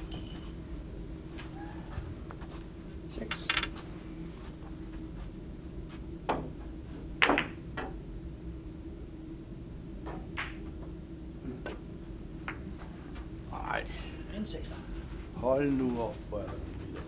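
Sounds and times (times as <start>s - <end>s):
billiard balls clicking: 3.3s - 3.8s, 10.1s - 10.8s.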